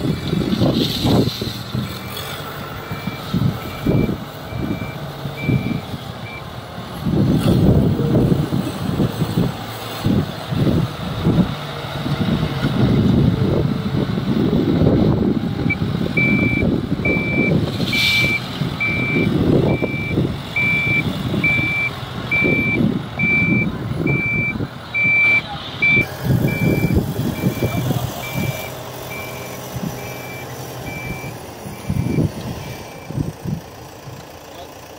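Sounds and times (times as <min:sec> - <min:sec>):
diesel engine working hard: 0:00.0 - 0:34.9
reversing alarm beeping: 0:02.8 - 0:06.5, 0:15.6 - 0:33.2.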